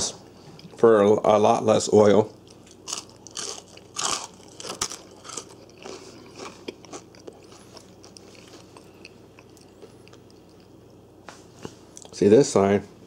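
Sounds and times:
crunching fries being chewed: 0:02.3 - 0:11.2.

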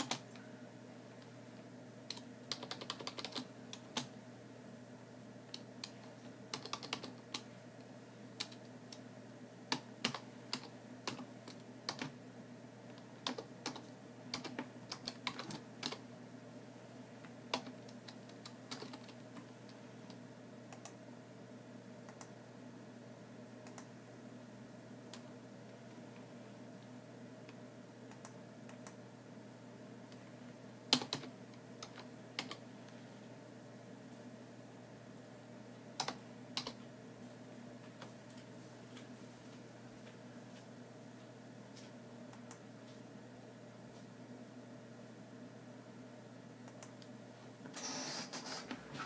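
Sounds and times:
typing on computer keyboard: 0:00.0 - 0:00.3, 0:02.1 - 0:04.1, 0:05.8 - 0:07.4, 0:09.7 - 0:12.2, 0:13.2 - 0:16.0, 0:17.5 - 0:19.5, 0:30.9 - 0:32.6
steady low hum: 0:00.0 - 0:47.8.

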